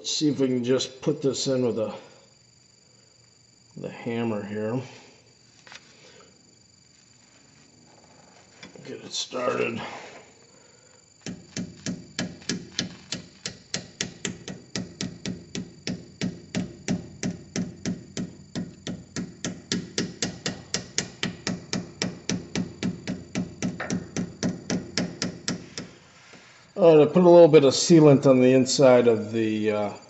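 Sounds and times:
hammer tapping metal: 11.3s - 26.0s.

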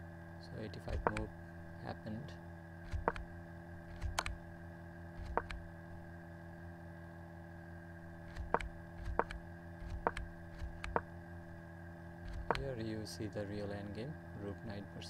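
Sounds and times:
steady electrical hum: 0.0s - 15.0s
computer mouse clicks: 0.9s - 1.3s, 2.8s - 3.3s, 3.9s - 4.4s, 5.2s - 5.6s, 8.3s - 11.1s, 12.2s - 12.7s.

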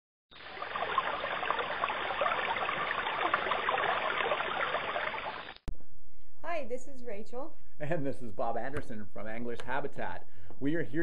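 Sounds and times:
running water trickling: 0.3s - 5.6s.

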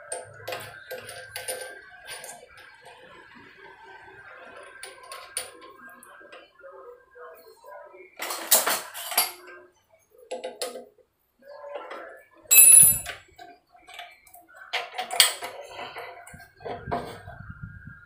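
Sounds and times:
metal clicks and rattles: 0.0s - 2.8s
sharp metallic clink ringing: 12.5s - 13.2s.

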